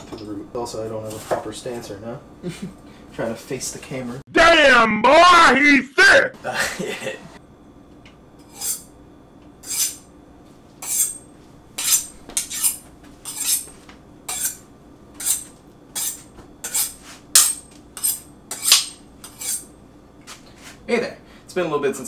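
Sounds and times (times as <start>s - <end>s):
knife scraping on honing steel: 8.4s - 8.9s, 9.6s - 10.1s, 10.8s - 14.6s, 15.2s - 19.7s.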